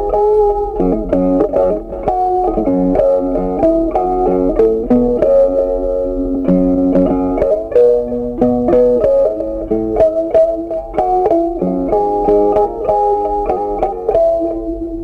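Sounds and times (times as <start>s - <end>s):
plucked guitar melody: 0.0s - 15.0s.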